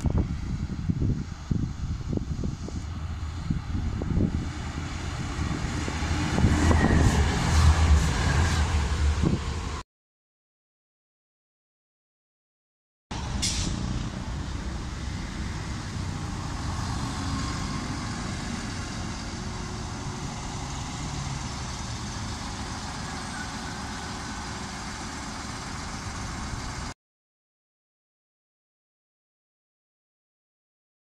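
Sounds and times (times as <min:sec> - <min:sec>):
diesel railcar passing: 0:00.1 - 0:09.8, 0:13.1 - 0:27.0
sharp hiss: 0:13.4 - 0:14.0.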